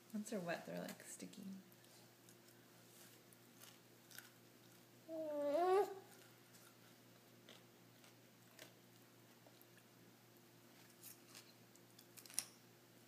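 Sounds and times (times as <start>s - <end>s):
baby chewing snacks: 1.7s - 4.9s, 5.6s - 9.9s
person humming: 5.1s - 6.1s.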